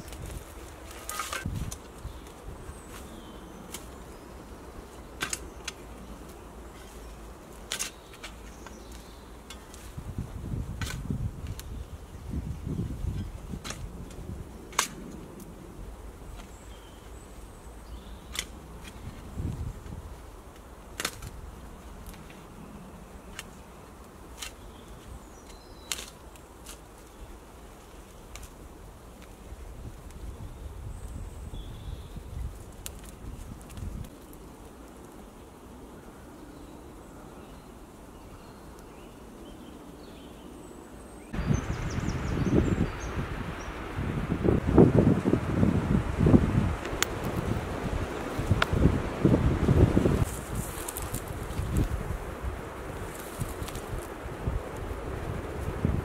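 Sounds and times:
low woodland background: 0.0 - 56.0
twigs snapping and clicking: 3.7 - 4.0, 5.1 - 7.0, 7.6 - 9.9, 13.6 - 15.5, 18.2 - 19.1, 20.5 - 21.4, 23.3 - 27.2, 28.0 - 28.6, 32.6 - 34.4, 46.8 - 47.5, 48.3 - 48.8, 50.2 - 52.0, 53.0 - 54.9.

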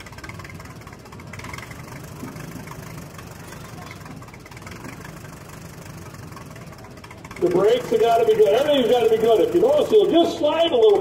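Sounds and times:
tractor engine idling: 0.0 - 11.0.

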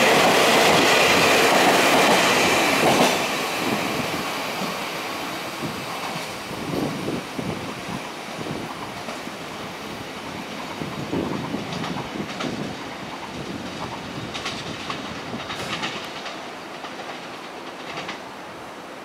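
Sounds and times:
train wheels clacking over rail joints: 0.0 - 3.9, 10.5 - 18.4
train rolling rumble: 0.0 - 19.0.

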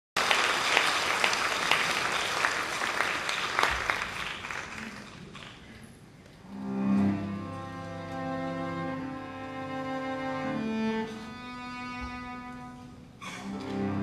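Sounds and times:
audience applause: 0.2 - 5.9
music with low notes: 6.4 - 12.9.

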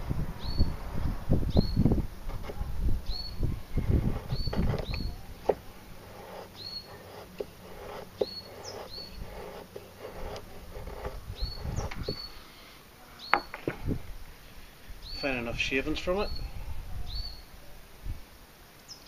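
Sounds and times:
bird chirping: 0.4 - 12.6, 15.0 - 15.5
knife shaving wooden stick: 3.8 - 12.3
short scraping clicks: 3.8 - 12.4.

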